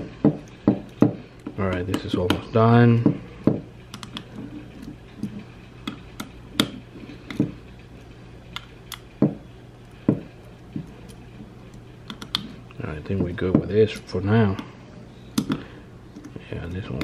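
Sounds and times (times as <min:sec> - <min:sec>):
faint steady hum: 0:00.0 - 0:17.0
screwdriver clicks and taps: 0:03.9 - 0:04.3, 0:12.1 - 0:12.5.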